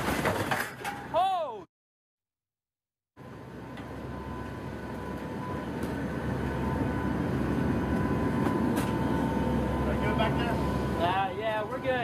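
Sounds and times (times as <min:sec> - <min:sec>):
aircraft engine and propeller drone: 0:03.2 - 0:12.0.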